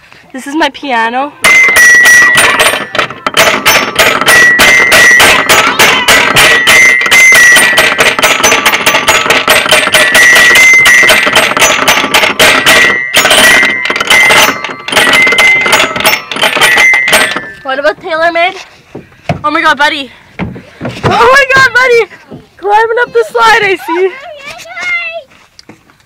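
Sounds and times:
piano panel notes ringing: 1.4s - 17.9s.

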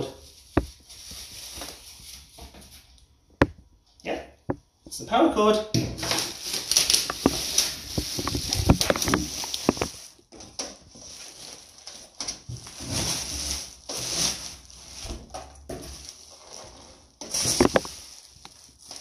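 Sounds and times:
plastic wrap crinkling: 0.0s - 3.0s, 6.0s - 19.0s.

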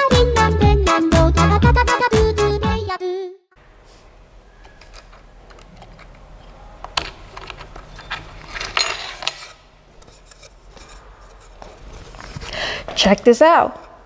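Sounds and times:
clips clicking: 4.6s - 9.6s.

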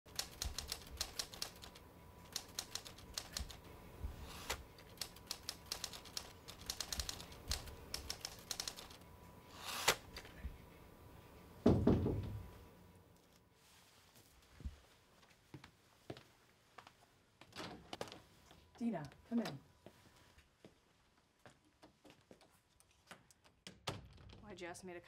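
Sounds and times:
typewriter keys clacking: 0.1s - 3.6s, 4.8s - 9.0s.

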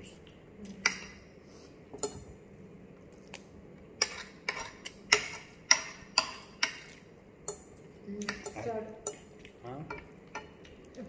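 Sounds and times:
cutlery clinking on a plate: 9.9s - 10.6s.

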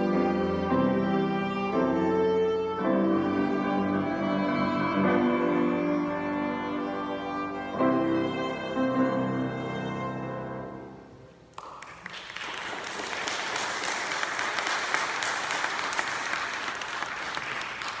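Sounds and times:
audience applause: 11.5s - 18.0s.

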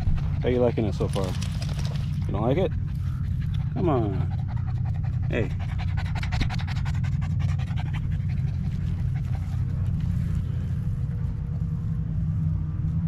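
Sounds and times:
dog panting hard: 0.0s - 10.1s
steady low rumble: 0.0s - 13.0s.

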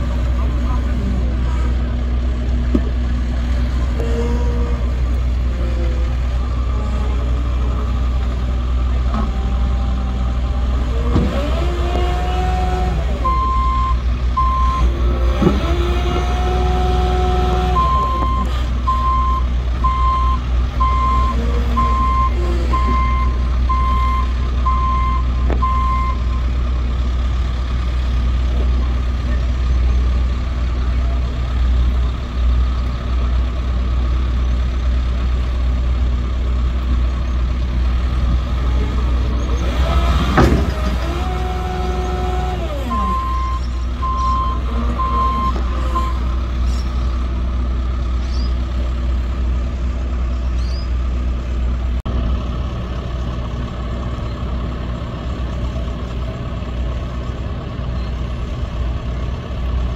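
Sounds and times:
diesel engine revving: 0.0s - 59.9s
reversing alarm beeping: 13.2s - 14.9s, 17.7s - 26.5s, 42.9s - 46.3s.

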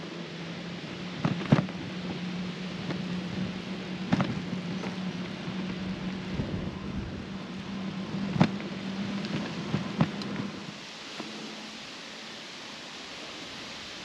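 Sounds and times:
bicycle tyres rolling on gravel: 0.0s - 14.0s
bike knocks and rattles: 4.1s - 5.0s, 9.4s - 10.2s.

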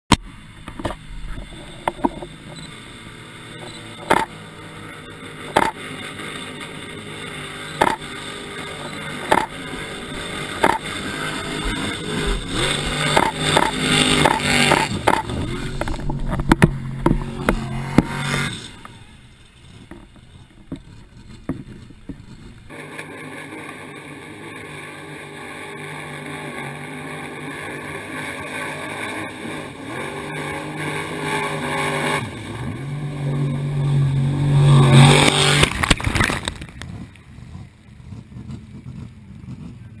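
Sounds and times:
engine running hard: 0.1s - 40.0s.

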